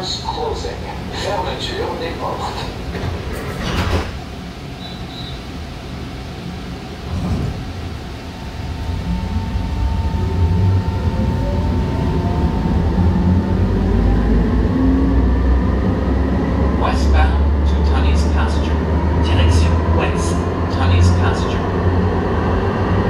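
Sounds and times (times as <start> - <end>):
low train rumble: 0.0 - 23.0
train traction motors whining: 7.1 - 23.0.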